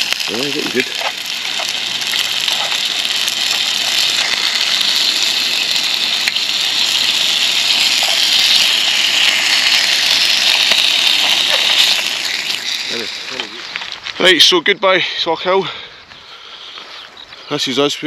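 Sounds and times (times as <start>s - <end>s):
meat sizzling in a frying pan: 0.0s - 14.4s.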